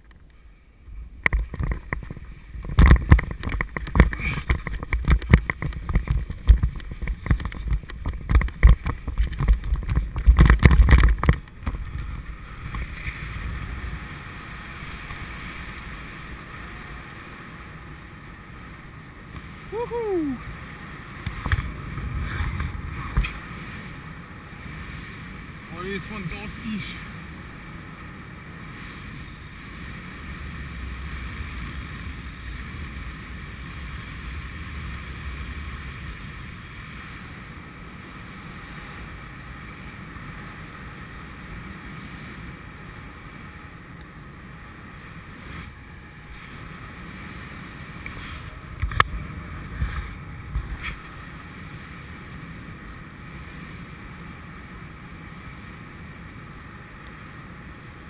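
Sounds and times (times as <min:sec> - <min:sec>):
wind rush over microphone: 0:00.0 - 0:58.0
low rumble: 0:19.6 - 0:24.6.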